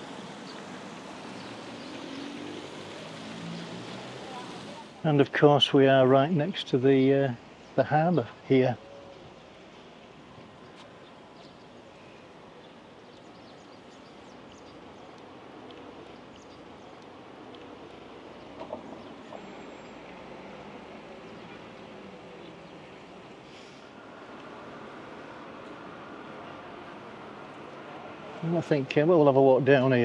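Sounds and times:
distant traffic hum: 0.0s - 30.0s
small knocks: 18.6s - 19.4s.

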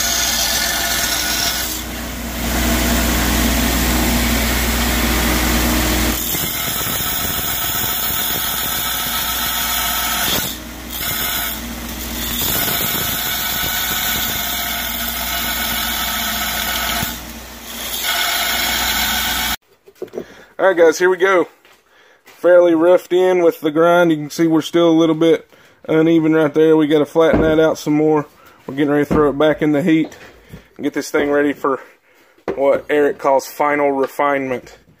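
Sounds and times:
belt grinder grinding steel: 0.0s - 19.6s.

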